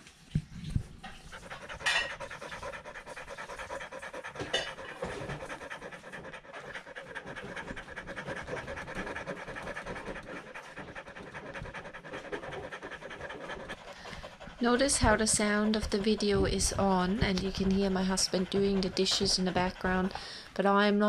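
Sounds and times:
dog panting heavily: 0:00.7 - 0:20.6.

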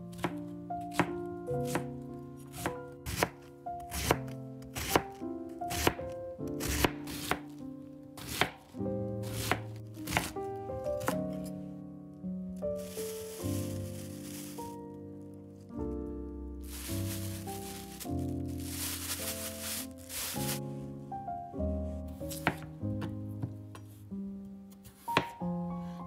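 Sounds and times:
soft background music: 0:00.0 - 0:26.0
knife cutting cabbage on board: 0:00.1 - 0:01.9, 0:02.5 - 0:07.6, 0:08.2 - 0:10.4, 0:11.0 - 0:11.5, 0:12.8 - 0:14.6, 0:22.3 - 0:22.7, 0:24.8 - 0:25.4.

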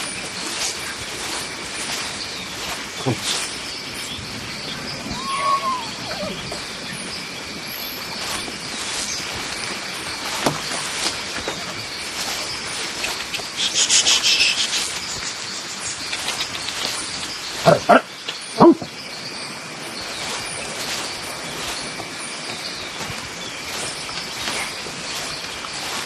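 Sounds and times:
birds chirping: 0:00.0 - 0:26.0
insects droning: 0:00.0 - 0:26.0
rapid high chirping: 0:12.5 - 0:18.0.

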